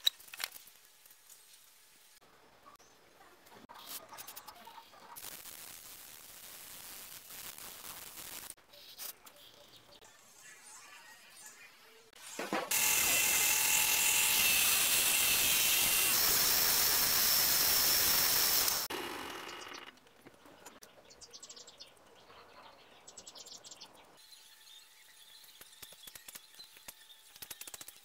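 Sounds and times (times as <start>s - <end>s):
grinder whine while polishing blade: 12.6s - 19.9s.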